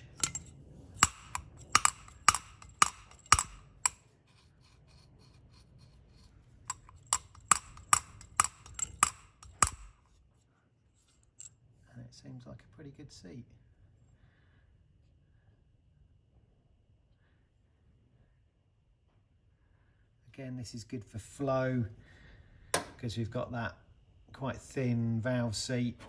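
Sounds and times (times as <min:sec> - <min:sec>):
metal valve tapping seat: 0:00.0 - 0:04.0, 0:06.7 - 0:10.0.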